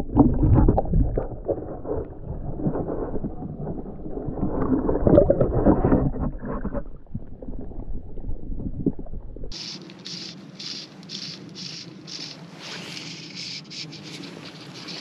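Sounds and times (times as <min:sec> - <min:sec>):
underwater swishing and gurgling: 0:00.0 - 0:15.0.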